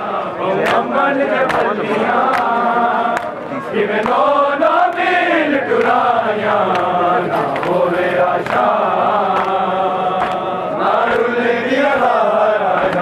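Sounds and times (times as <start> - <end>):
men chanting a lament: 0.0 - 13.0
hands slapping chests: 0.6 - 3.4, 4.0 - 4.2, 8.4 - 10.5.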